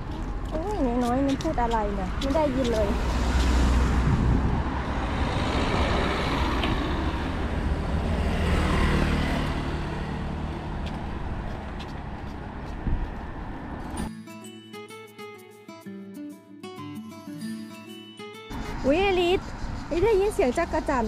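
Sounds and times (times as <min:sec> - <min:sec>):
vehicles going by: 0:00.0 - 0:14.1, 0:18.5 - 0:21.0
motor scooter: 0:05.0 - 0:12.5
music: 0:14.0 - 0:19.4.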